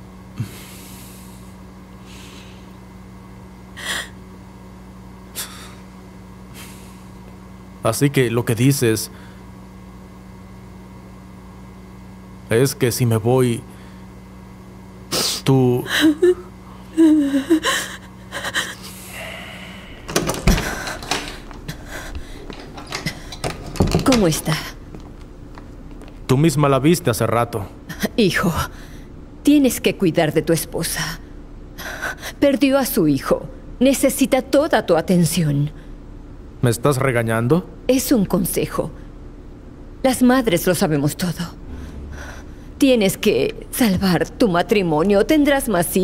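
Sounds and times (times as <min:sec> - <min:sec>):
steady low hum: 0:00.0 - 0:46.0
faint breaths: 0:17.9 - 0:23.4
heeled boots footsteps on hard floor: 0:24.9 - 0:26.2.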